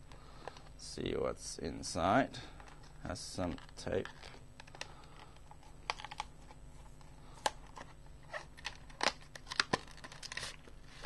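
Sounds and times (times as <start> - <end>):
cardboard package being opened: 3.5 - 7.0, 7.6 - 11.0.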